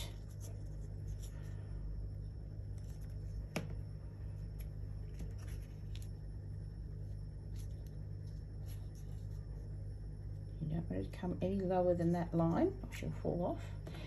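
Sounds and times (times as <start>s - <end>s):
steady low hum: 0.0s - 14.0s
paper rustling and tapping: 2.8s - 3.8s.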